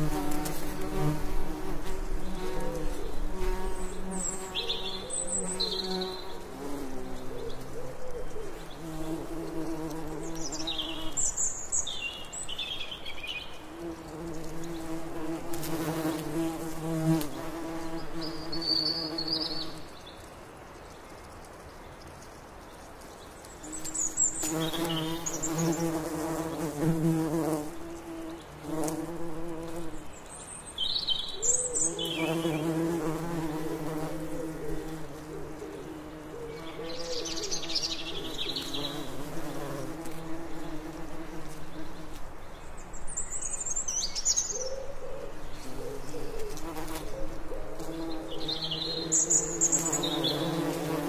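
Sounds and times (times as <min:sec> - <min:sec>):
bee buzzing: 0:00.0 - 0:07.7, 0:08.5 - 0:11.2, 0:13.6 - 0:19.8, 0:23.7 - 0:30.1, 0:32.0 - 0:42.3, 0:45.6 - 0:51.0.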